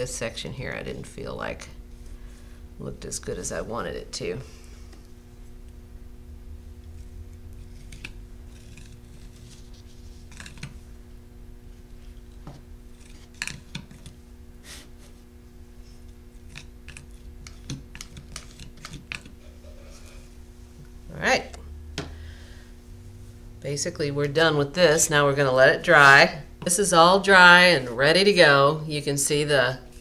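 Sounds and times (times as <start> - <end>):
low electrical hum: 0.0 - 30.0
spatula clicking and scraping: 6.8 - 10.8, 12.1 - 14.2, 15.9 - 20.3.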